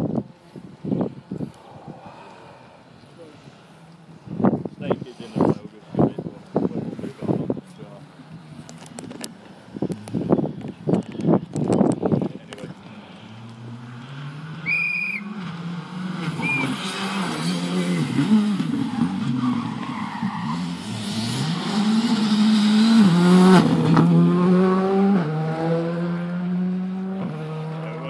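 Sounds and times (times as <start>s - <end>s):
rally car engine at full throttle: 11.2s - 28.0s.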